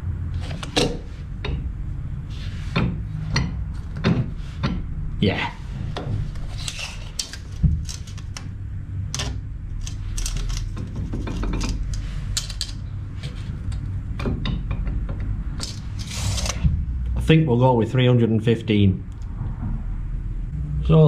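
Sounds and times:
low steady hum: 0.0s - 21.0s
tape measure clicks and rattles: 9.2s - 12.9s.

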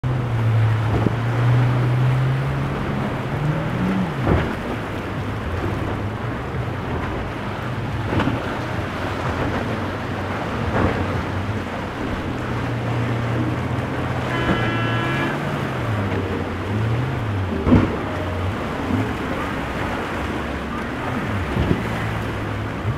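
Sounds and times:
boat engines droning: 0.0s - 22.9s
hull slapping waves: 0.0s - 22.9s
short higher tone: 14.3s - 15.5s.

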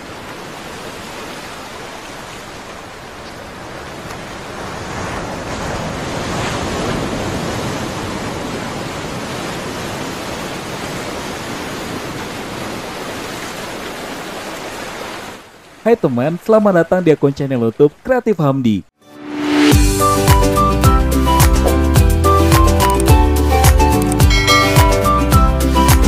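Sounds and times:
sea water rushing: 0.0s - 17.4s, 19.2s - 26.0s
wind: 0.0s - 18.6s.

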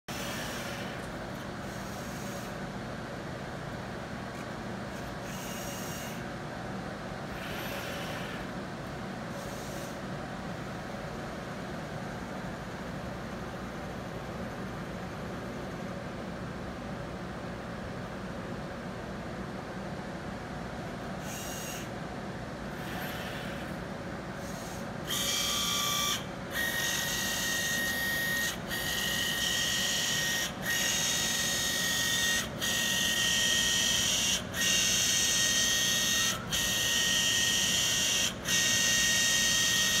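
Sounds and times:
robot motors whirring with high whine: 0.1s - 2.6s, 5.0s - 6.2s, 7.3s - 8.5s, 21.2s - 21.9s, 22.7s - 23.8s, 24.4s - 40.0s.

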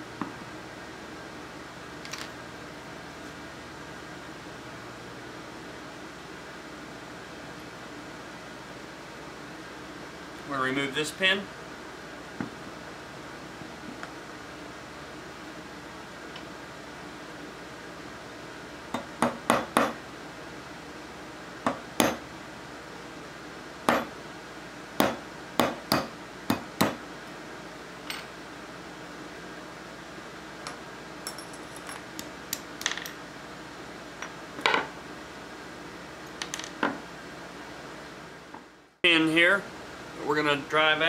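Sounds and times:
hammer tapping metal punch: 21.7s - 22.2s.

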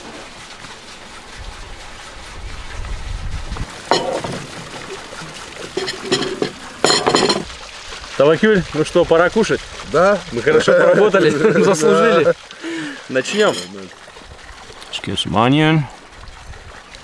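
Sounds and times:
metal tray clattering on wooden table: 3.9s - 4.8s, 5.6s - 7.5s.

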